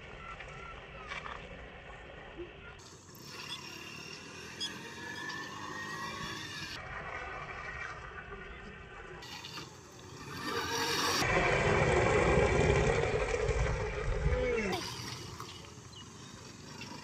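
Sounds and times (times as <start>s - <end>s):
small engine revving: 2.8s - 8.4s, 9.2s - 17.0s.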